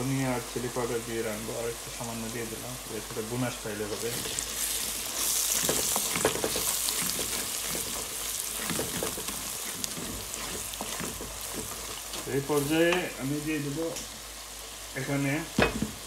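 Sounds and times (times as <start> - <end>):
onions sizzling in hot oil: 0.0 - 16.0
wooden spatula scraping pan: 3.1 - 13.2.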